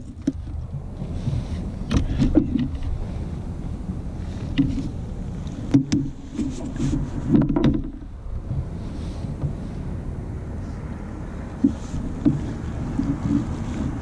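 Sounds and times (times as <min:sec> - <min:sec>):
gear knocking against kayak hull: 0:00.0 - 0:03.1, 0:04.2 - 0:08.7, 0:09.3 - 0:09.6, 0:11.6 - 0:14.0
low steady rumble: 0:00.0 - 0:14.0.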